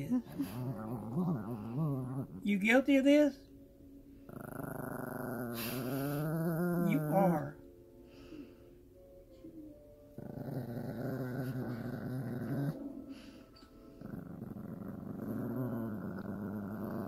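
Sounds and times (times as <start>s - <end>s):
dog growling low: 0.1s - 2.5s, 4.3s - 7.6s, 10.1s - 13.2s, 13.9s - 17.0s.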